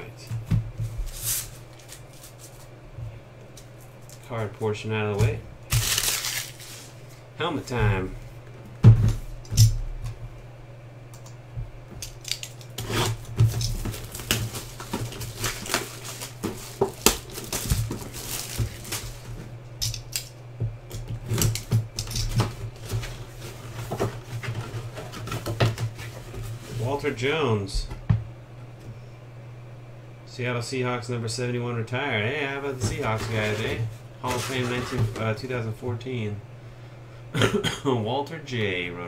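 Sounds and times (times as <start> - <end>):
steady low hum: 0.0 - 39.0
plastic wrap crinkling: 5.7 - 7.2, 12.1 - 19.4.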